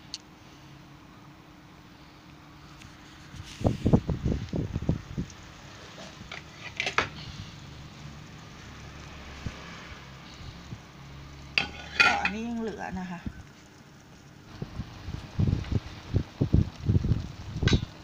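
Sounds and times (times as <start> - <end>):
utensil clatter and scrape: 2.7 - 4.0, 5.7 - 7.5, 11.5 - 12.8
oil sizzling in frying pan: 5.5 - 18.0.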